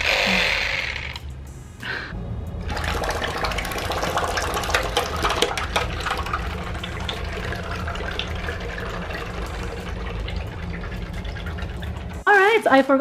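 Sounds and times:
water splashing in bathtub: 2.6s - 12.2s.

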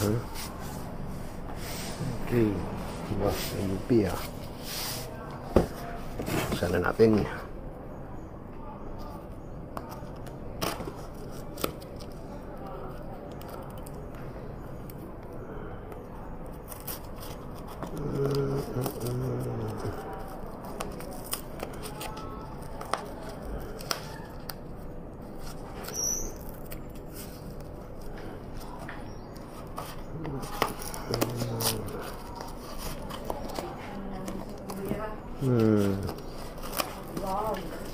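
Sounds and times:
plastic wrapping crinkling: 16.6s - 37.9s.

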